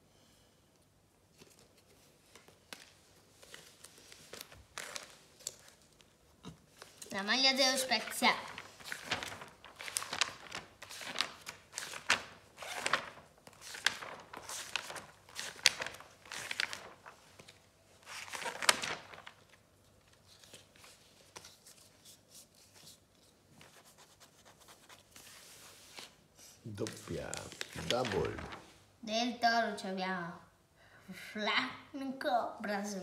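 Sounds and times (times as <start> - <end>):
page turning: 1.3 - 7.2, 7.9 - 28.8
paper rustling and crinkling: 1.3 - 28.8.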